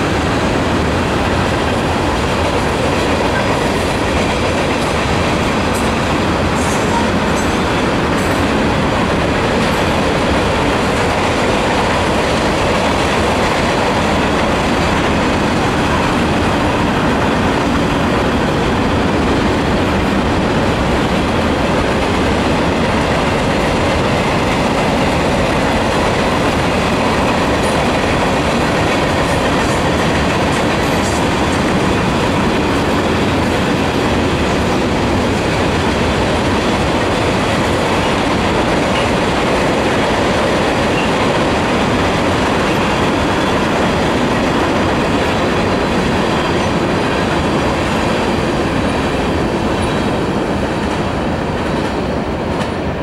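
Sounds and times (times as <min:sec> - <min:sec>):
train wheels rolling on rails: 0:00.0 - 0:53.0.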